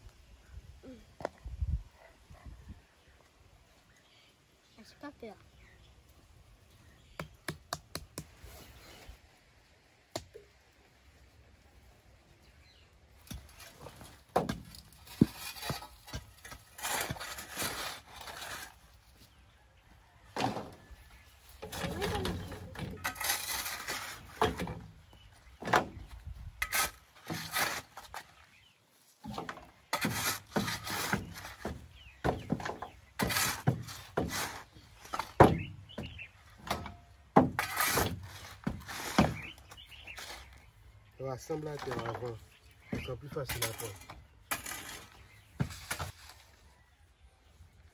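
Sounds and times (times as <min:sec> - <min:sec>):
shovel scraping earth: 0:13.2 - 0:19.4, 0:20.5 - 0:25.2, 0:26.6 - 0:40.7, 0:41.6 - 0:46.6.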